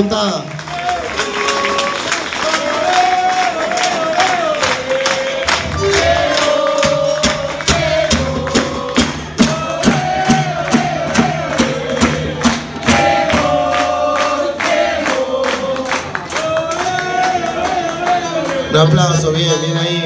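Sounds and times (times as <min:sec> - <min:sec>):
crowd clapping along: 0:00.0 - 0:19.5
people singing: 0:01.0 - 0:20.0
bass drums beating: 0:05.2 - 0:15.8.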